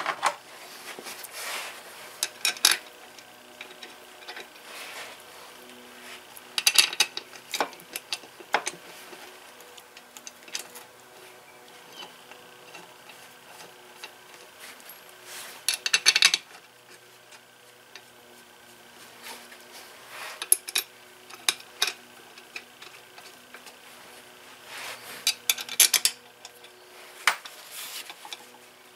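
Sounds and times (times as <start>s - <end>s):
metal tools clinking on workbench: 25.2s - 28.6s.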